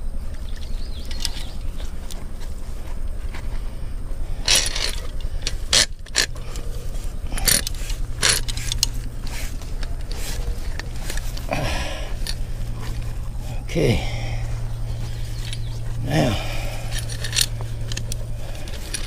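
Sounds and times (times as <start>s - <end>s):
steady low rumble: 0.0s - 19.0s
chain and stakes clinking: 0.3s - 19.0s
metal clanks: 4.4s - 13.2s, 14.9s - 19.0s.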